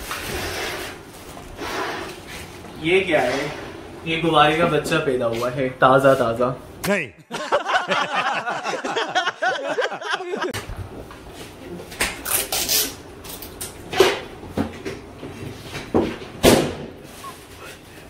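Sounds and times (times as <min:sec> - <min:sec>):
man talking: 0:04.1 - 0:07.3.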